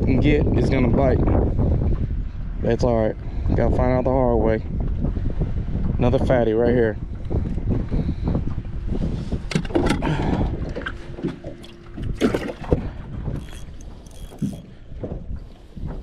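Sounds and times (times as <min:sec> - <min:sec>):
water slapping against boat hull: 0:07.2 - 0:16.0.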